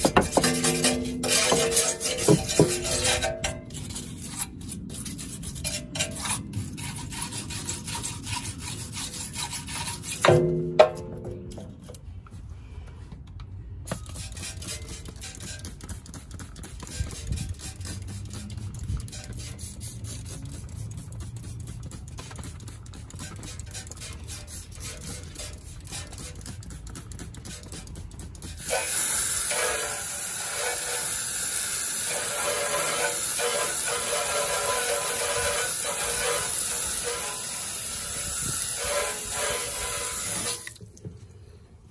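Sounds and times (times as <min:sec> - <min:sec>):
spray bottle squirting: 0:13.9 - 0:40.8
high-pressure water jet hissing: 0:27.4 - 0:40.7.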